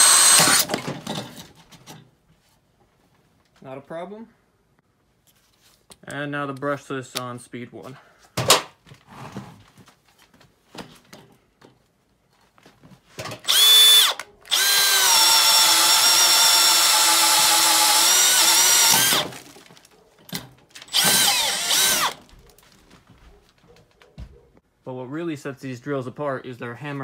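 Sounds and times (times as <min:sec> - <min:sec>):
drill boring into wood: 0:00.0 - 0:00.8, 0:13.4 - 0:19.5, 0:20.8 - 0:22.2.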